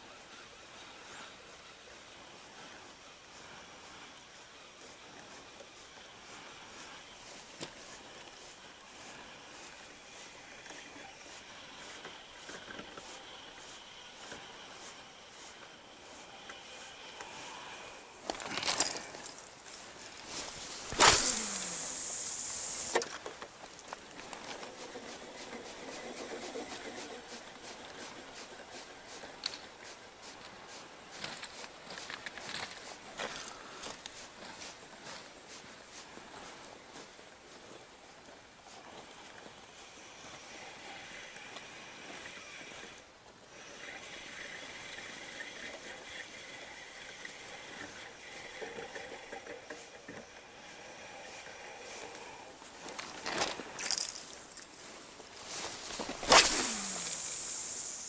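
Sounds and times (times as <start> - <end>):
fishing reel cranking: 20.9 - 23.0, 56.2 - 58.0
sharp reel click: 20.9 - 23.0, 56.1 - 58.0.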